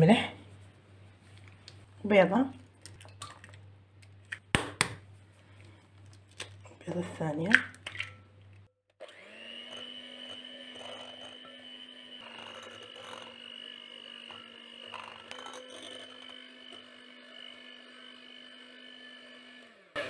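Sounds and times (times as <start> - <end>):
electric hand mixer whirring: 9.0 - 20.0.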